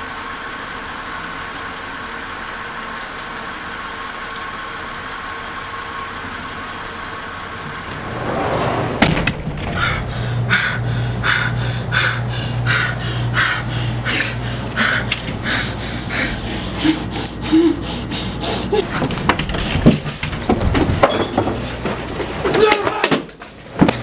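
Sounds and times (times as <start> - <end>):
man panting hard: 9.7 - 19.0.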